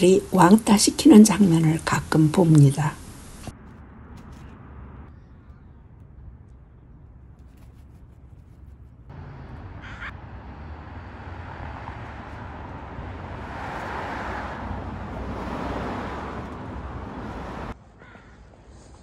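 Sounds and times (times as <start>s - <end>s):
vehicle passing: 3.5s - 6.6s, 9.1s - 17.8s.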